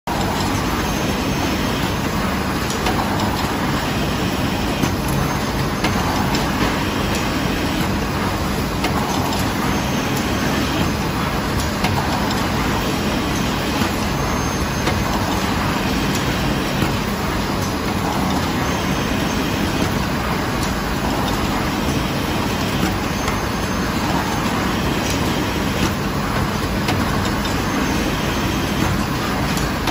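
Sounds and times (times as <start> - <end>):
packaging machine din: 0.1 - 29.9.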